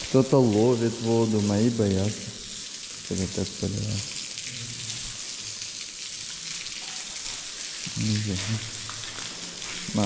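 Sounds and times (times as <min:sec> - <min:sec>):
water spraying hiss: 0:00.0 - 0:10.0.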